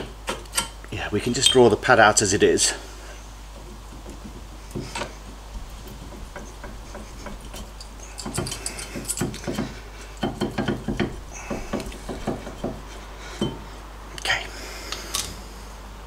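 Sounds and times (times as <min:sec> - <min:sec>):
short rattling knocks: 0:03.6 - 0:13.7
metal clinks and scraping: 0:07.2 - 0:09.6.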